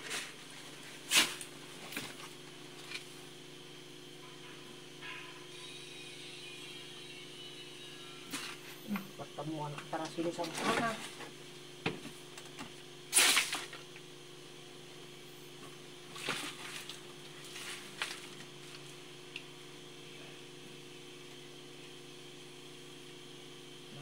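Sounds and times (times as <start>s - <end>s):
faint steady hum: 0.0s - 24.0s
shovel scraping wet soil: 13.1s - 13.7s.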